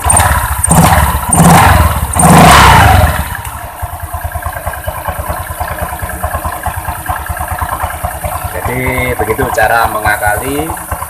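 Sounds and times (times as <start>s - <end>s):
scooter engine revving and idling: 0.0s - 11.0s.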